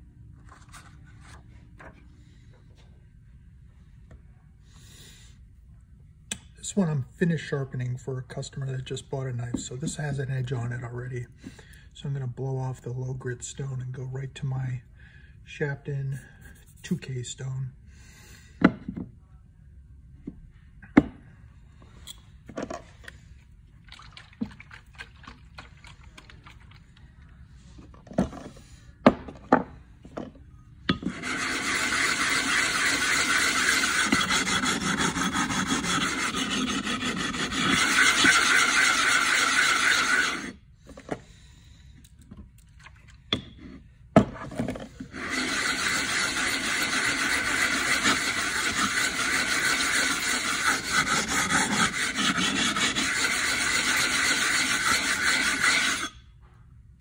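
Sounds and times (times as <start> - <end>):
plate scraping on whetstone: 30.9 - 40.6, 45.1 - 56.2.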